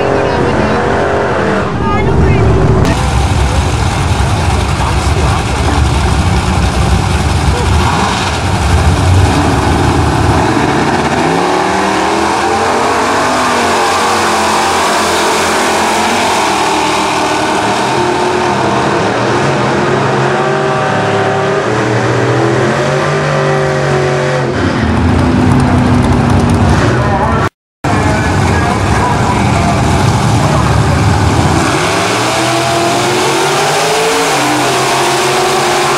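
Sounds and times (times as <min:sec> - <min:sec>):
low engine drone close by: 0:00.0 - 0:11.2
drag cars accelerating: 0:00.0 - 0:35.9.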